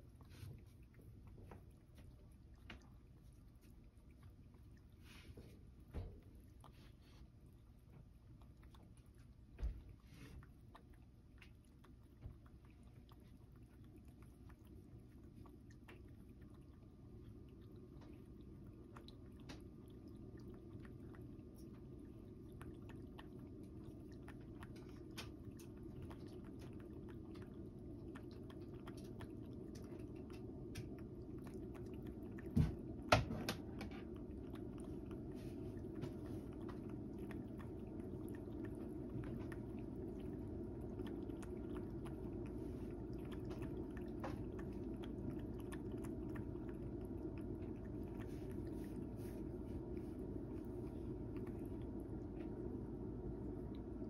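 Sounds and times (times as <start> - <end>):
cat lapping water: 0.0 - 54.0.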